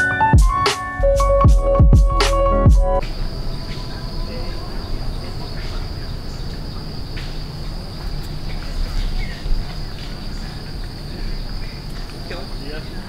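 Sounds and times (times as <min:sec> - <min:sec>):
insects droning: 0:03.0 - 0:13.0.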